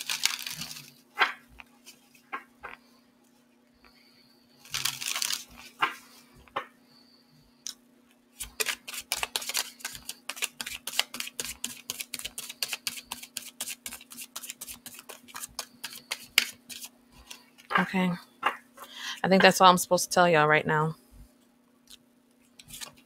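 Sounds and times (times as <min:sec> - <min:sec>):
cards rustling in hands: 0:00.0 - 0:01.0, 0:04.6 - 0:06.0, 0:08.4 - 0:17.8, 0:22.5 - 0:23.0
cards flicking in shuffle: 0:00.0 - 0:01.4, 0:04.7 - 0:06.0, 0:08.4 - 0:17.7.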